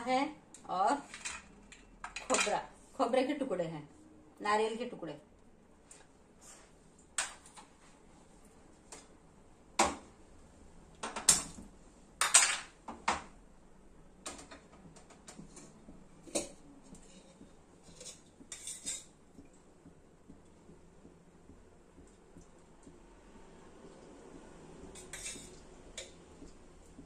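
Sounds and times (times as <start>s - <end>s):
utensils and dishes clinking: 15.5s - 19.2s, 25.0s - 26.2s.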